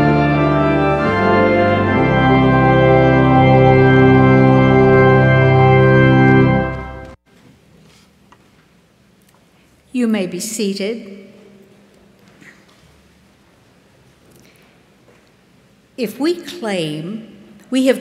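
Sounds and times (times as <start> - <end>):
church organ playing hymn chords: 0.0 - 7.2.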